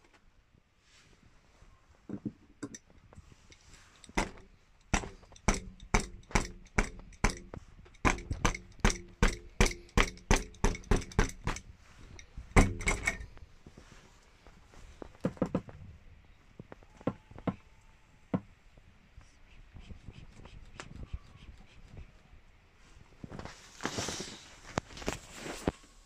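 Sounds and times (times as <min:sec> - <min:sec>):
spanner hitting air mattress: 0:04.0 - 0:11.7, 0:12.5 - 0:13.3.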